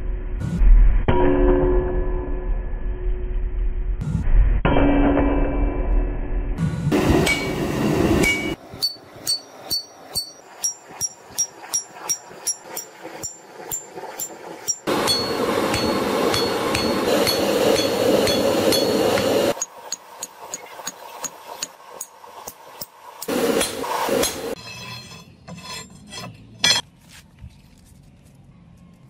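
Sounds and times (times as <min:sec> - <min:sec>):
loud steady rushing noise: 0:06.6 - 0:24.6
sledgehammer on steel and anvil: 0:06.9 - 0:26.9.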